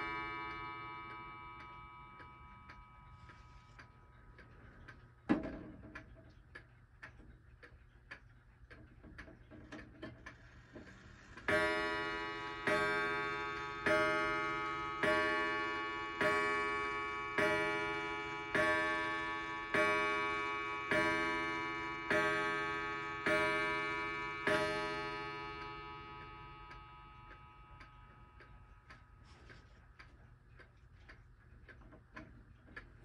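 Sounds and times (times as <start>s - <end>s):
clock striking ringing strokes: 0.0s - 4.2s, 11.4s - 29.3s
pendulum clock ticking: 0.0s - 33.0s.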